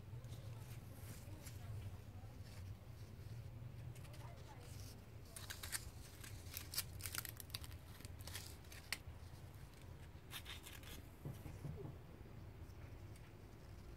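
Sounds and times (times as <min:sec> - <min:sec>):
dry leaves rustling under hand: 0:00.2 - 0:11.0.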